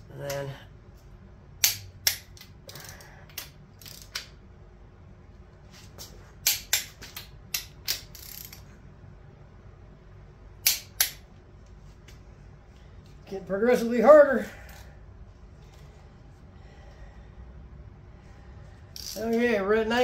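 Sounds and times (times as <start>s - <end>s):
wrench ratcheting: 1.6s - 4.3s, 6.4s - 8.7s, 19.0s - 19.5s
torque wrench clicking: 1.6s - 4.4s, 6.4s - 8.6s, 10.6s - 11.2s, 19.0s - 19.4s.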